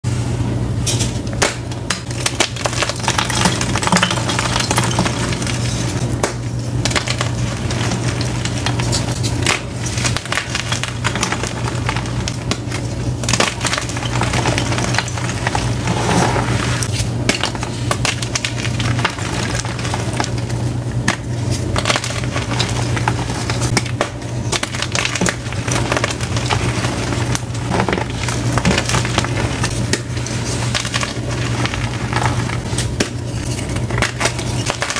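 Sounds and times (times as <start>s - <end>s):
low steady hum: 0.0s - 34.9s.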